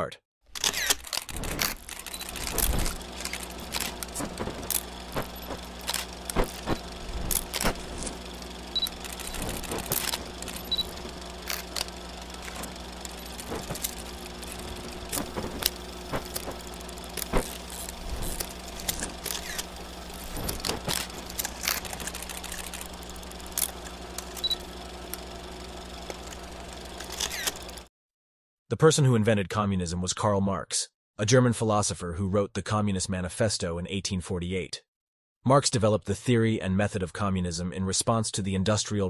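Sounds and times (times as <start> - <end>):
low hum: 0.6 - 27.8
film crackle clicks and pops: 0.7 - 27.8.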